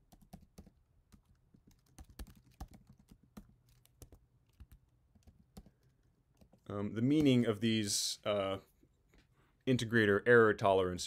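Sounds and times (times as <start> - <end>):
keyboard typing: 0.0 - 6.7.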